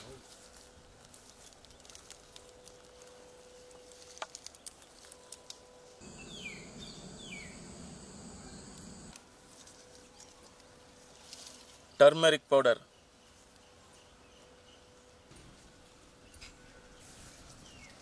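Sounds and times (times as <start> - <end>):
falling bird calls: 6.0 - 9.1
high-pitched insect-like whine: 6.0 - 9.2.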